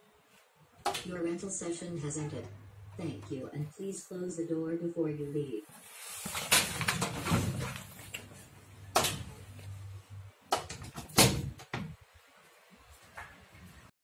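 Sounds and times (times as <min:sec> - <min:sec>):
low hum: 0:08.4 - 0:10.5
metal locker door banging shut: 0:10.6 - 0:11.9.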